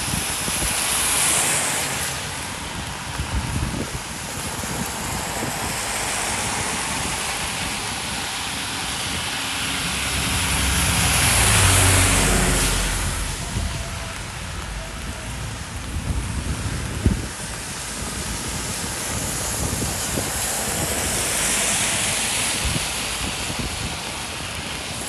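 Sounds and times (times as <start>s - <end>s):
steady rain: 0.0s - 25.0s
tyres swishing on wet road: 0.0s - 25.0s
wind hiss: 0.0s - 25.0s
low engine hum: 8.3s - 19.8s.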